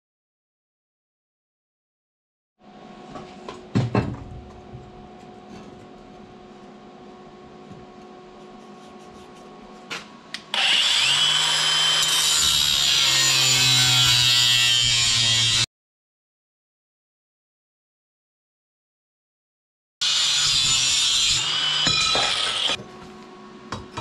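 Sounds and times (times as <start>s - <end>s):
power tool whining: 10.5s - 13.6s, 20.0s - 22.8s.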